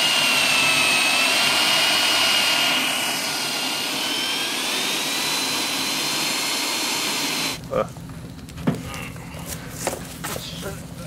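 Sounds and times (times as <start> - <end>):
electric drill whining: 0.0 - 7.6.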